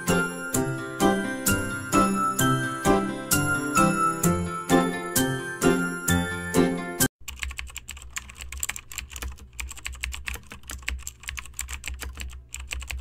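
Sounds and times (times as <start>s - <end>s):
music: 0.0s - 7.1s
keyboard typing clicks: 7.2s - 13.0s.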